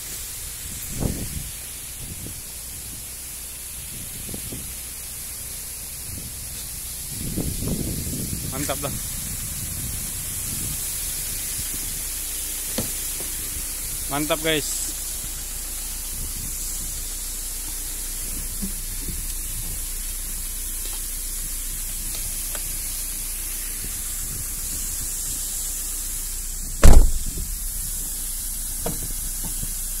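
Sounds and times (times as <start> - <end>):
loud thump: 26.8 - 27.6.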